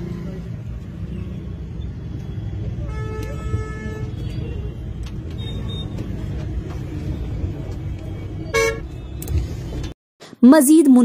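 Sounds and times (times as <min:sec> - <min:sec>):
street traffic rumble: 0:00.0 - 0:10.0
vehicle horn toot: 0:02.8 - 0:06.0, 0:08.4 - 0:09.0.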